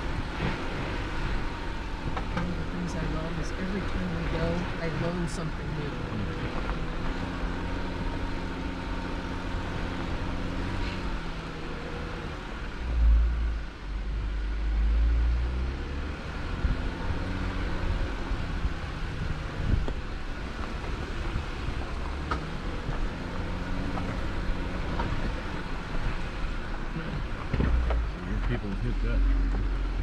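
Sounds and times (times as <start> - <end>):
vehicle engine running: 0.0 - 30.0.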